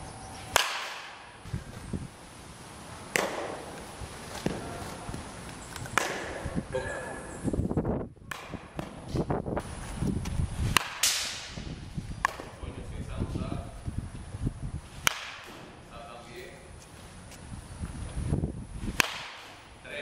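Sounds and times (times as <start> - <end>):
baseball bat cracking ball: 0.5 - 1.5, 3.1 - 5.2, 5.8 - 6.6, 8.3 - 9.0, 10.7 - 12.6, 15.0 - 15.9, 18.9 - 19.8.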